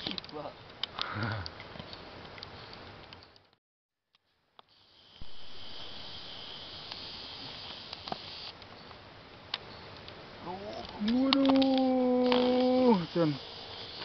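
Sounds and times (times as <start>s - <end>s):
streamside ambience: 0.0s - 14.0s
high-pitched insect buzz: 4.7s - 8.6s, 10.5s - 14.0s
faint clicks: 10.8s - 12.7s.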